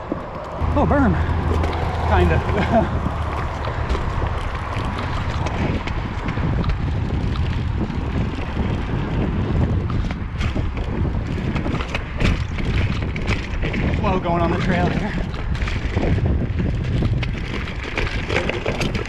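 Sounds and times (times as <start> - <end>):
bike clattering over bumps: 0.0 - 19.0
bike tyres on dirt: 0.0 - 19.0
wind buffeting microphone: 0.0 - 19.0.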